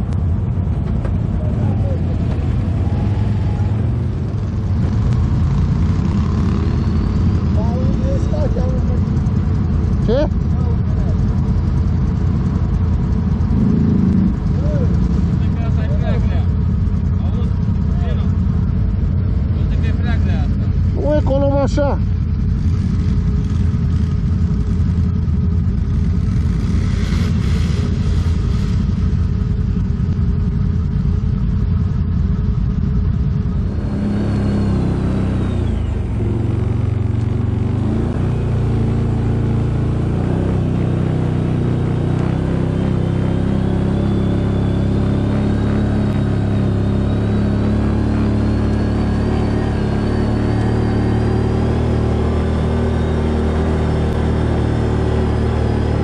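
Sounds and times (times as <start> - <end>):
atv engine revving under load: 2.0 - 10.2, 13.3 - 15.4, 33.7 - 56.0.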